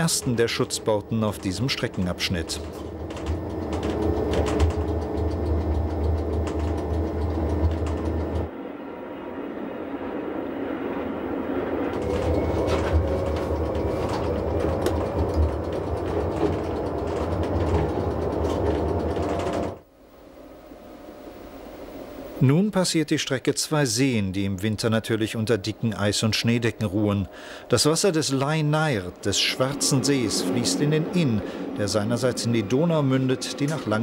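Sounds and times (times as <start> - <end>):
track clicks: 0.0 - 8.5, 11.8 - 19.9, 24.8 - 34.0
train wheels rumbling on rails: 0.0 - 8.5, 11.6 - 19.8, 24.6 - 34.0.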